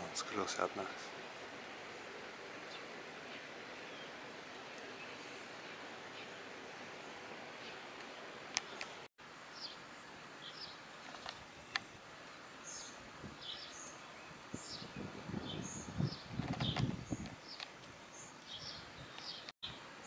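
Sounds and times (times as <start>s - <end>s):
steady outdoor hiss: 0.0s - 20.0s
small bird chirping: 12.6s - 19.5s
low rumbling on microphone: 14.6s - 17.4s.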